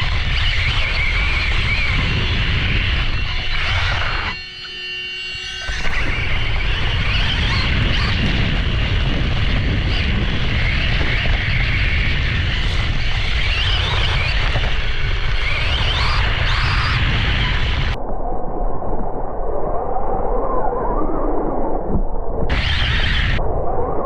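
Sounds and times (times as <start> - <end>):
wind rumble on microphone: 0.0 - 4.4, 5.5 - 24.0
electric motor whining: 0.0 - 18.0.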